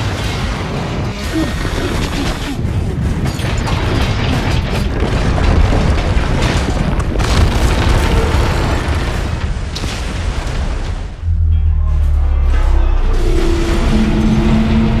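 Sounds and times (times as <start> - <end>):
deep rumble of building collapsing: 0.0 - 15.0
music: 11.2 - 15.0.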